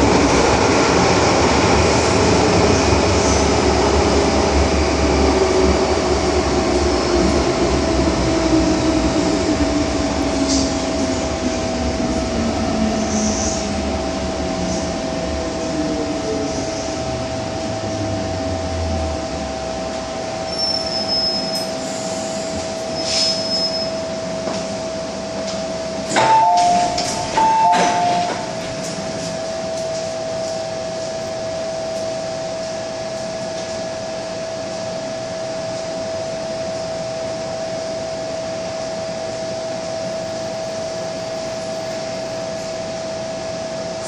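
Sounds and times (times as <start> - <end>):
train humming: 0.0 - 44.0
train brakes squealing: 20.5 - 24.2, 26.1 - 28.4
train doors sliding open: 26.0 - 30.1.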